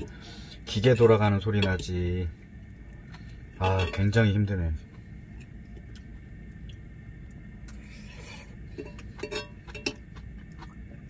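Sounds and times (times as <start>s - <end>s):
metal utensil clinking on skillet: 8.8s - 10.0s.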